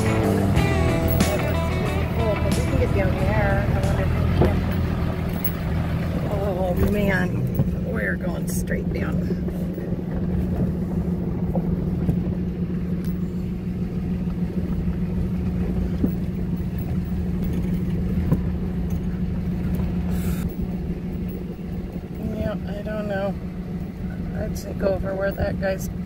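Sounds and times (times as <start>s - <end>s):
diesel truck engine droning: 0.0s - 26.0s.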